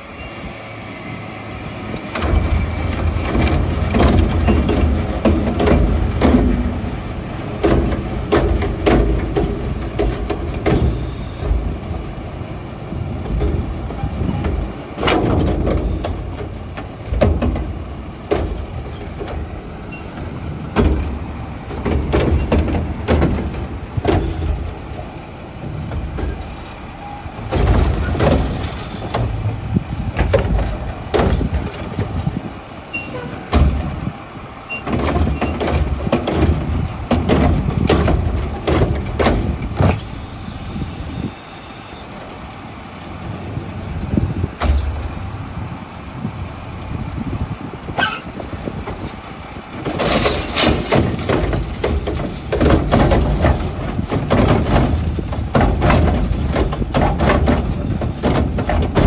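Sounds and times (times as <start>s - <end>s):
garbage truck engine revving: 0.8s - 59.0s
metal clanks and bangs: 2.0s - 12.0s, 13.2s - 24.8s, 27.4s - 34.1s, 34.7s - 40.1s, 49.8s - 59.0s.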